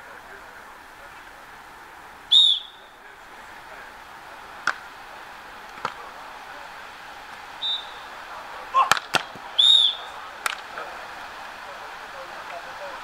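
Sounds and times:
referee's whistle blast: 2.3s - 3.0s, 7.6s - 8.1s, 9.6s - 10.2s
volleyball being hit: 4.6s - 5.0s, 5.7s - 6.1s, 8.7s - 10.8s.

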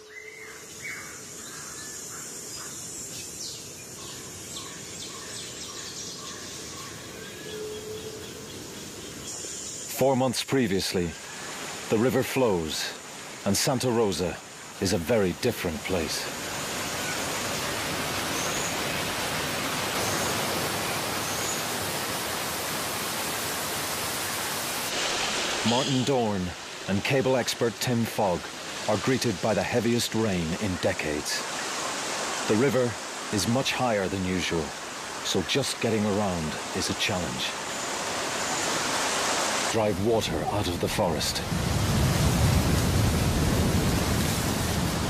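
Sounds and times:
bird chirps and calls: 0.0s - 9.9s, 18.3s - 19.1s, 25.7s - 26.2s
river flowing: 0.0s - 45.0s.

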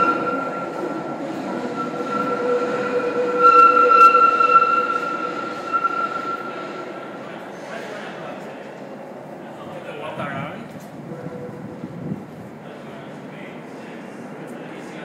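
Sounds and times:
rail car wheels squealing: 0.0s - 7.9s.

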